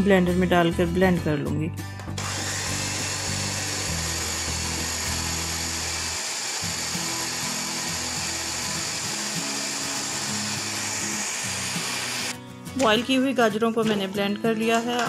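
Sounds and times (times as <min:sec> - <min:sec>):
blender running: 0:02.2 - 0:12.4.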